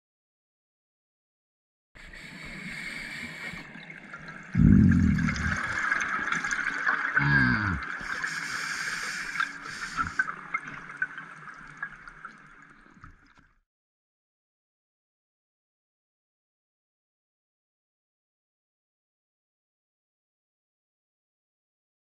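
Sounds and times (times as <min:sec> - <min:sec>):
underwater air bubbles gurgling: 0:02.2 - 0:12.9.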